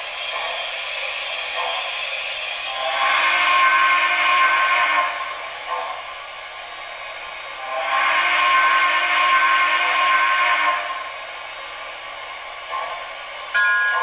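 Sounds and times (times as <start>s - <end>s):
model train steam whistle: 2.6s - 5.5s, 7.6s - 11.2s, 13.6s - 14.0s.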